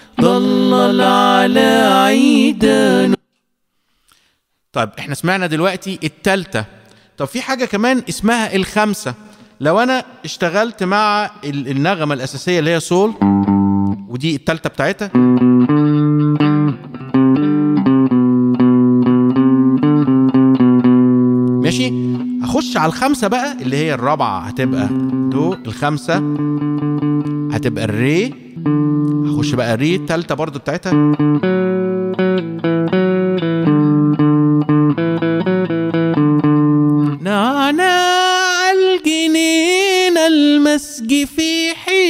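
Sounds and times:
clean electric guitar melody: 13.2s - 14.0s, 15.2s - 37.3s.

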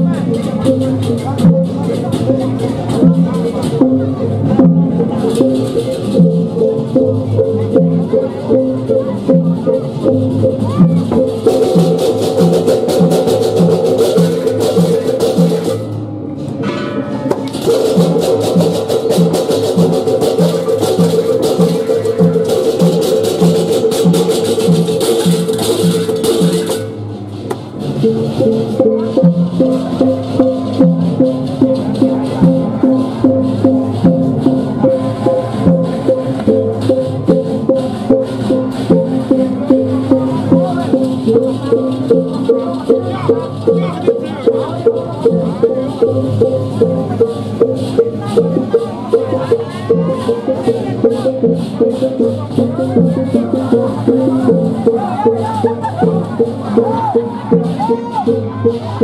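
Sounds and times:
pulsing drum beat: 0.0s - 16.3s, 17.2s - 59.0s
hand cymbals clashing: 0.0s - 27.0s
ringing gong tones: 16.6s - 19.9s.

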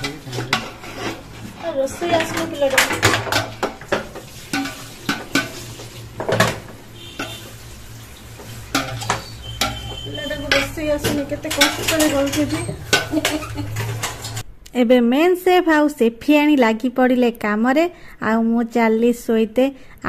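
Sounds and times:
utensils clinking against a pot: 0.0s - 7.6s, 8.2s - 14.4s.

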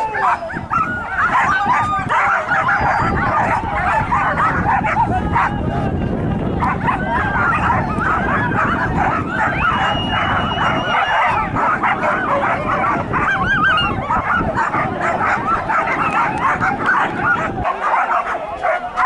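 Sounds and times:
dogs whining and yelping: 0.0s - 5.5s, 6.6s - 19.0s
steady high whistle: 9.6s - 11.2s.

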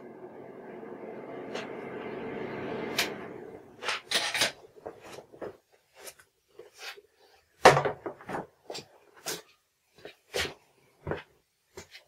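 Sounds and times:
steady hum with hiss: 0.0s - 4.8s.

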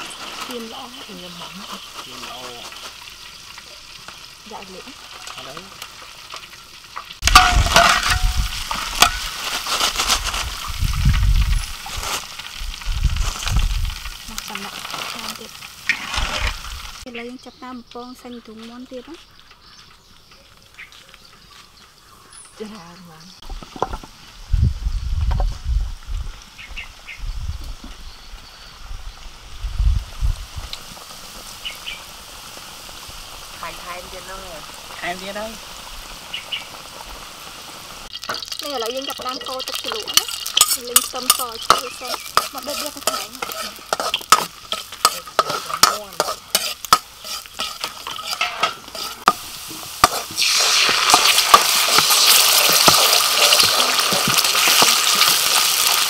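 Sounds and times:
metal utensils scraping a wok: 0.0s - 10.8s, 13.3s - 17.0s, 38.0s - 56.0s
chicken frying in hot oil: 0.0s - 17.1s, 24.8s - 56.0s.

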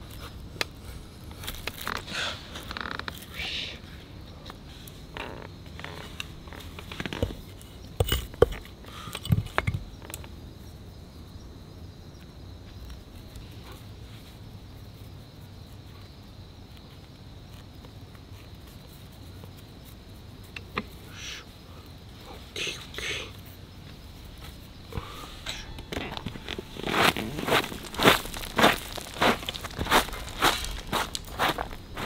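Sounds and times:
insect trill: 0.0s - 32.0s
tinder fibres crackling: 0.0s - 32.0s.

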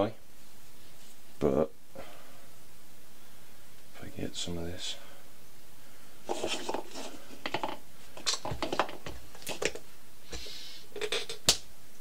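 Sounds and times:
kitchen objects knocking and clinking: 6.3s - 9.8s.

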